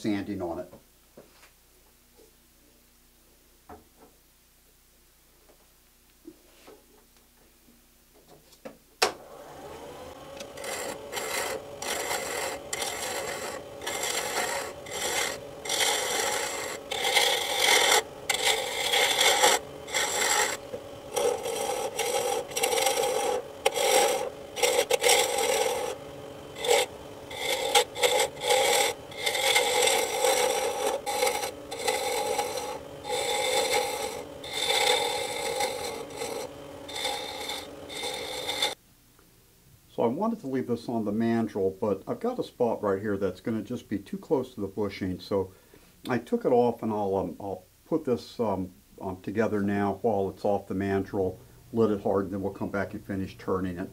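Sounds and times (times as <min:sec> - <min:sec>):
wood lathe humming: 0:09.2 - 0:38.8
tool scraping spinning wood: 0:09.4 - 0:38.8.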